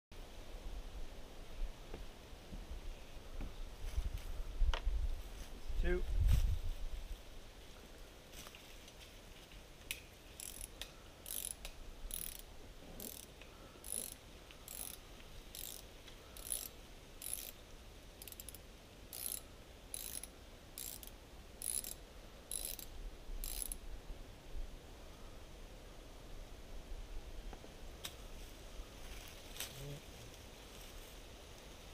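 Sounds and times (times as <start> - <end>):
ratchet tool clicking: 10.4 - 17.6, 18.2 - 23.8.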